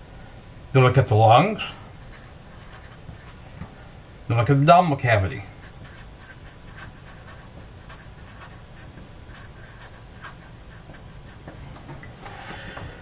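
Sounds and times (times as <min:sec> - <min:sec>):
marker scratching on paper: 0:01.6 - 0:03.6, 0:05.6 - 0:11.6.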